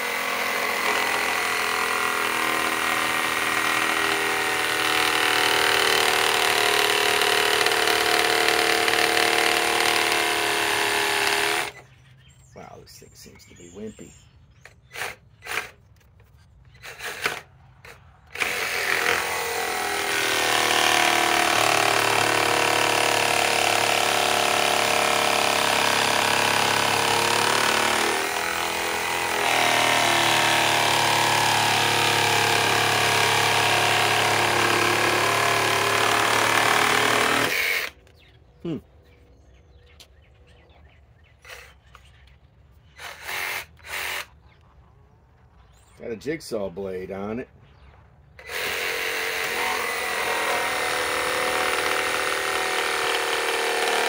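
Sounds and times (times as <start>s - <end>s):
reciprocating saw motor running: 0.0s - 11.8s, 16.8s - 17.5s, 18.3s - 38.0s, 48.4s - 54.0s.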